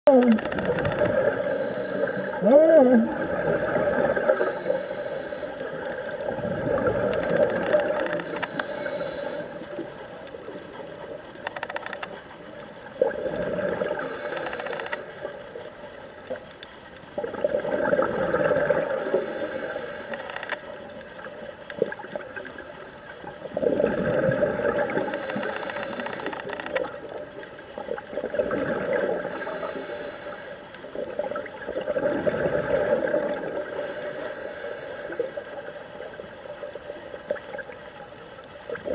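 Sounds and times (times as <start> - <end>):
exhaled bubbles underwater: 0.1 - 4.9, 5.6 - 11.2, 12.8 - 14.4, 17.1 - 19.6, 20.7 - 25.8, 26.7 - 29.6, 30.8 - 34.0
regulator inhale hiss: 1.4 - 2.4, 4.2 - 6.2, 8.2 - 9.9, 14.0 - 15.1, 19.0 - 20.5, 25.0 - 26.5, 29.2 - 30.8, 33.6 - 35.5.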